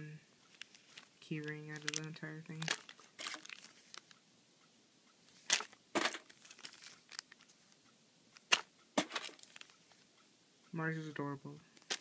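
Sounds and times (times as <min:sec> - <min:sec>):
plastic bags crinkling: 0:00.5 - 0:04.2, 0:05.4 - 0:07.5, 0:08.4 - 0:09.8, 0:11.8 - 0:12.0.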